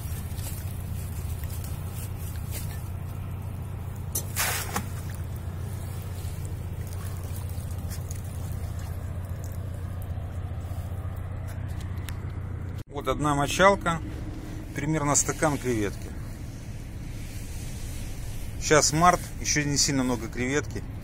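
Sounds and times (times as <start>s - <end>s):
water dripping and trickling: 0.0s - 11.3s
steady low hum: 0.0s - 21.0s
water splash: 4.1s - 10.1s.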